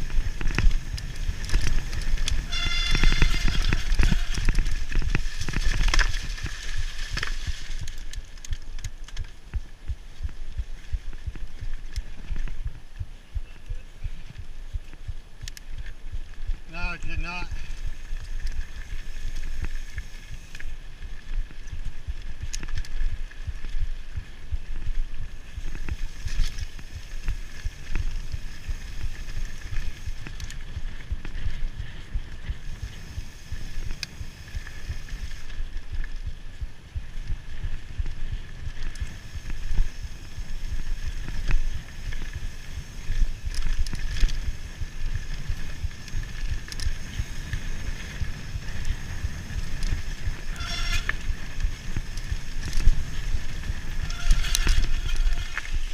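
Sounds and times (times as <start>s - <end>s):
tyres rumbling on dirt: 0.0s - 8.2s
wind on microphone: 0.0s - 8.3s, 9.4s - 55.9s
bike knocking and rattling: 0.0s - 55.9s.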